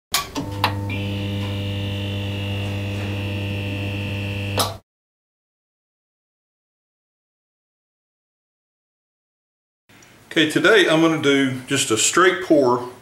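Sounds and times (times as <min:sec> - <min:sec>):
neon sign buzzing hum: 0:00.3 - 0:04.8.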